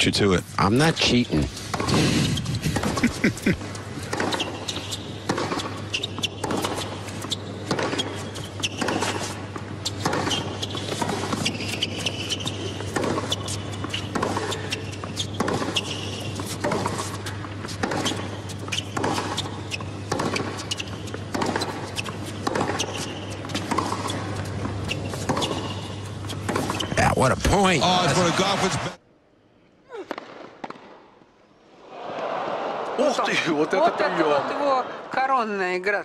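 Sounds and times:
sneaker squeaks: 1.7 - 2.9, 3.8 - 27.0.

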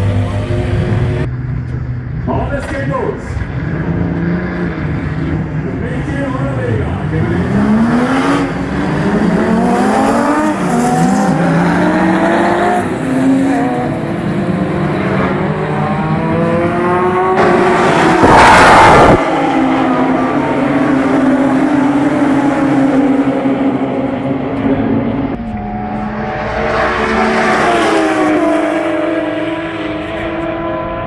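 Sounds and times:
racing car engines accelerating: 2.6 - 31.0
loud rushing noise: 17.3 - 22.1.

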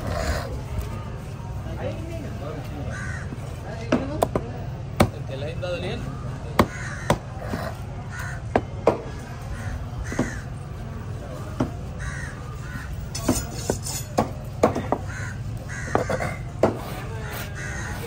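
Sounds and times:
crows cawing: 2.8 - 3.6, 6.2 - 10.7, 11.9 - 13.2, 14.8 - 18.0.

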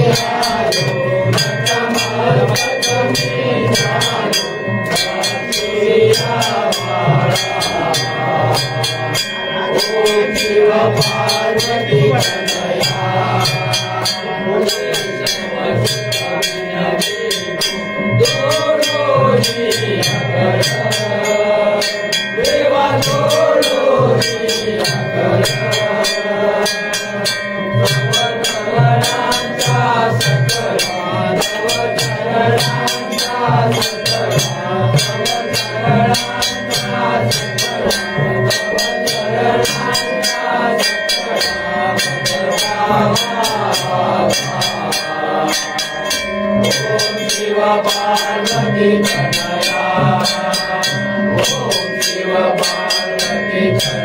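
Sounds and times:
drum and percussion beat: 0.0 - 54.0
group singing devotional song: 0.0 - 54.0.

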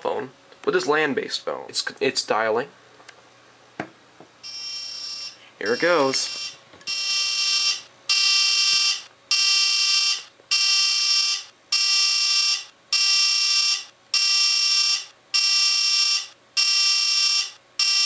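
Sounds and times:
harsh buzzing ringtone: 4.4 - 18.0.

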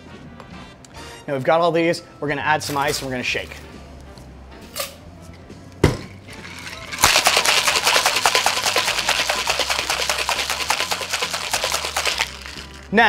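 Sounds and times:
ice rattling in cocktail shaker: 6.3 - 13.0.

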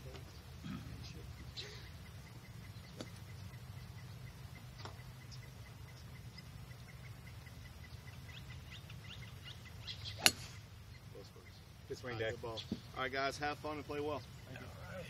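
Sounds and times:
faint bird chirps: 0.0 - 13.0
golf club striking ball: 2.8 - 3.4, 10.0 - 10.7.

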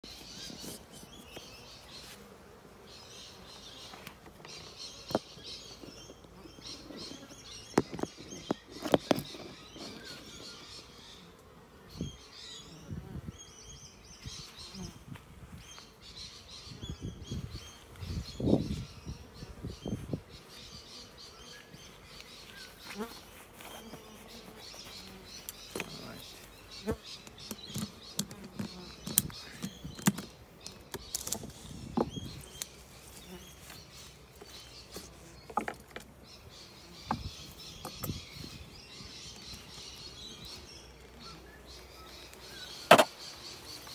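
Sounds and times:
honeybees buzzing: 0.0 - 43.9
small birds chirping: 0.0 - 43.9.

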